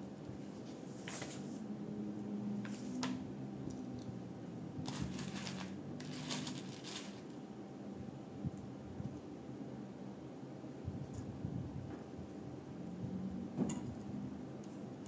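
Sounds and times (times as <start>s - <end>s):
paper pages turning: 4.9s - 7.3s.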